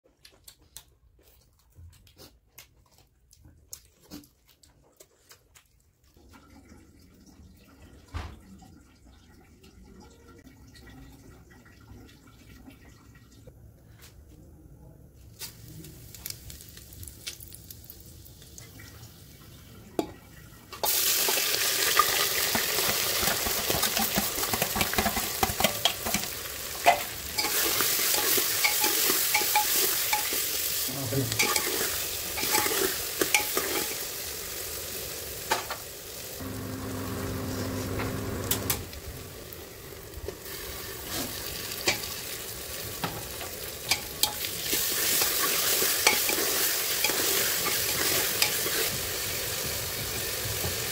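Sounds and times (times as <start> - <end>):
food sizzling in hot oil: 15.4 - 50.9
spoon stirring in pan: 21.9 - 34.0, 40.6 - 42.2, 43.0 - 49.1.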